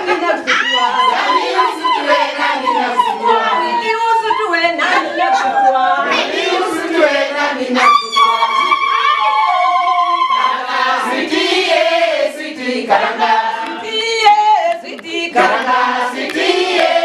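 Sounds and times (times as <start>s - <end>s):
group singing unaccompanied: 0.0s - 17.0s.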